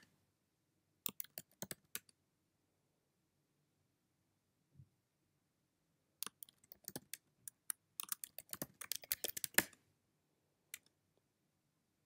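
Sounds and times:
typing on computer keyboard: 0:01.1 - 0:02.1, 0:06.2 - 0:09.8.

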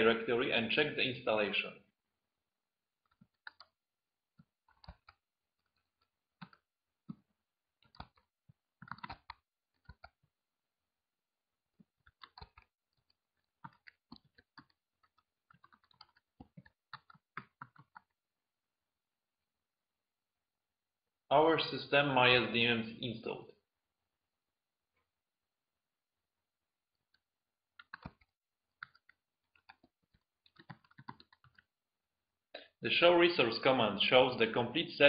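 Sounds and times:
faint keyboard typing: 0:03.0 - 0:10.4, 0:11.7 - 0:18.2, 0:26.9 - 0:31.8.

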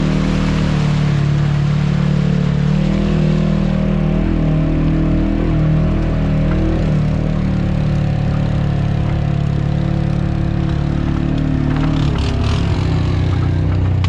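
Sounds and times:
atv engine running: 0:00.0 - 0:14.0.

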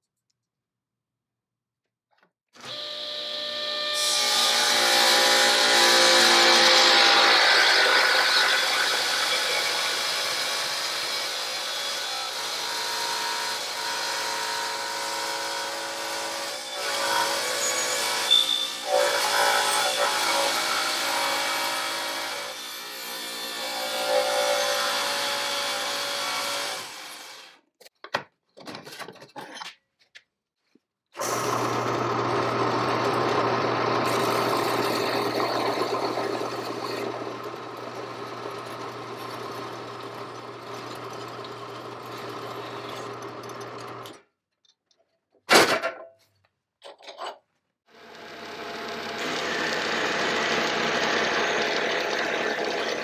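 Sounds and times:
table saw cutting metal: 0:02.6 - 0:27.6, 0:31.2 - 0:44.2, 0:47.9 - 0:53.0
band saw humming: 0:31.2 - 0:44.0.

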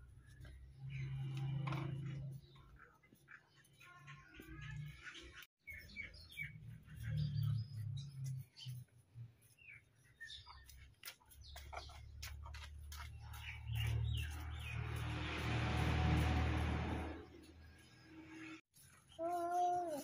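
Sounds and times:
birds chirping: 0:00.0 - 0:20.0
low hum: 0:13.4 - 0:18.6.

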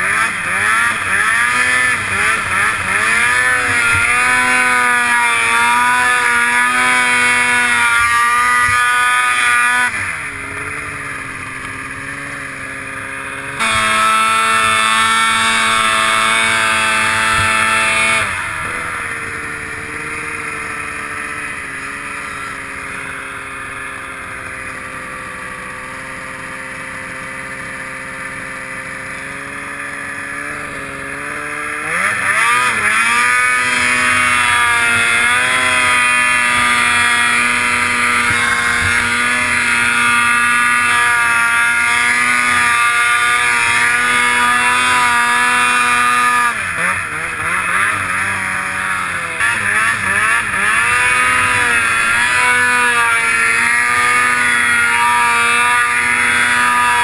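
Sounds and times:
snowmobile engine revving: 0:00.0 - 0:57.0.

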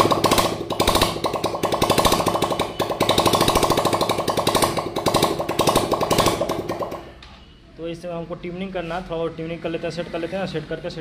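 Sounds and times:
motorcycle engine with open exhaust: 0:00.0 - 0:07.2.

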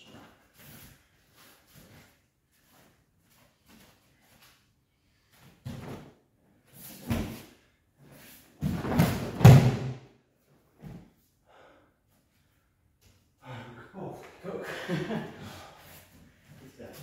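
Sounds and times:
feet thudding and scuffling on mat: 0:06.8 - 0:07.5, 0:08.1 - 0:10.0
body slamming onto mat: 0:08.6 - 0:10.0.

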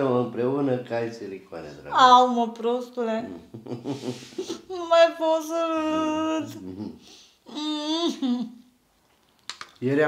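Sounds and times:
woman whimpering: 0:05.8 - 0:08.6.

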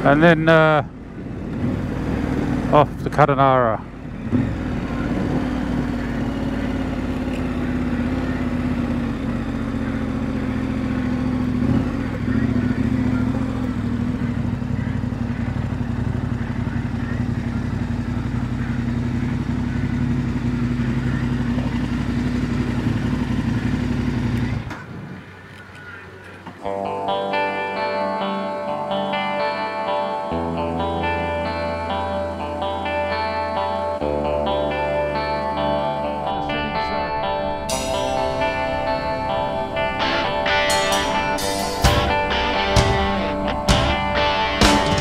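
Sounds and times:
road and wind noise: 0:00.0 - 0:26.7, 0:29.8 - 0:44.8
motorcycle engine cruising: 0:00.0 - 0:45.0.

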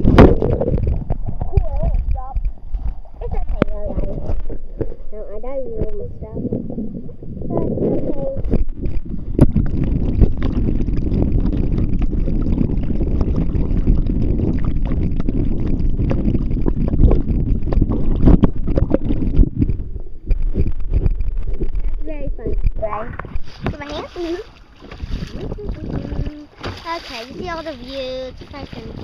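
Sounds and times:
muffled water rushing and gurgling: 0:00.0 - 0:29.0
knocks and thumps: 0:08.3 - 0:24.2, 0:24.8 - 0:27.7.

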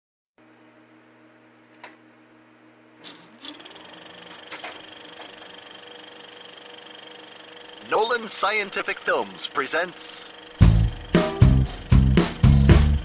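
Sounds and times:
fast mechanical clatter: 0:03.0 - 0:11.2
motor winding up: 0:03.0 - 0:13.0.

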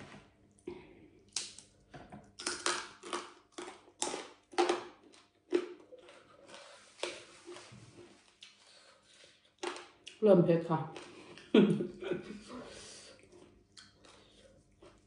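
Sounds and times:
crispy pork crunching: 0:01.2 - 0:10.2.

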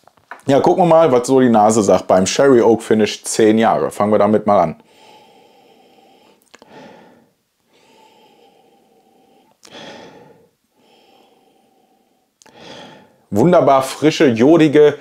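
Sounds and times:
man breathing through nose: 0:04.8 - 0:13.3.

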